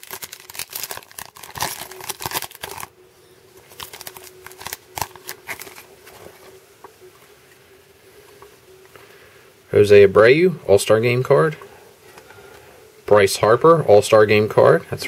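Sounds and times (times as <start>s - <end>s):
foil wrapper tearing and crinkling: 0.0s - 2.9s, 3.6s - 6.3s.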